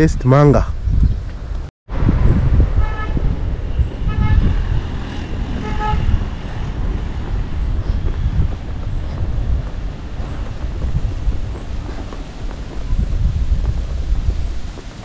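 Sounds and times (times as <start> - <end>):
short horn toots: 4.0 - 4.7, 5.6 - 6.2.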